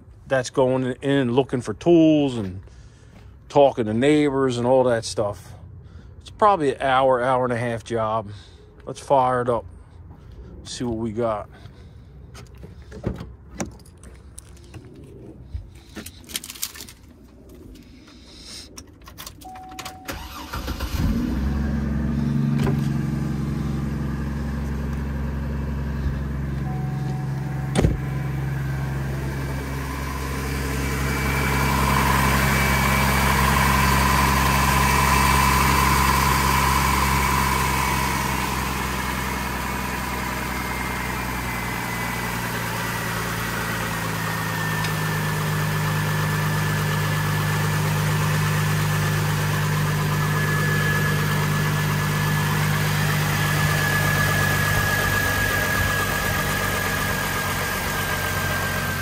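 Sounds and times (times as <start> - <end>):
car engine idling: 11.6 - 59.0
faint whine falling in pitch: 26.4 - 30.2.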